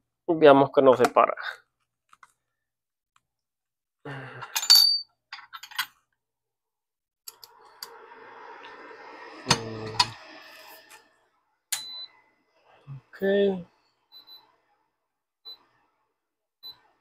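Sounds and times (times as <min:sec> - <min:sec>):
small tools clattering: 0:04.4 - 0:06.0.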